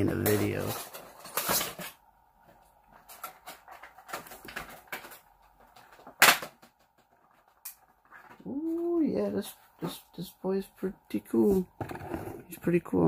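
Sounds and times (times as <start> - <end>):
plastic packaging rustling: 0.1 - 9.2.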